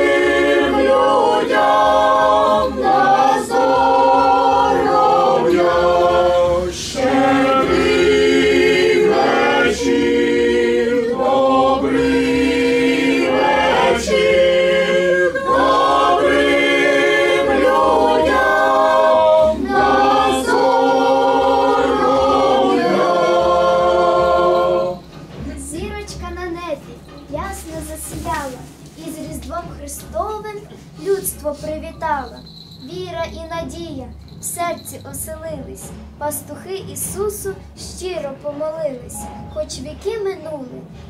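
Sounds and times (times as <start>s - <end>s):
group singing a cappella: 0.0s - 25.2s.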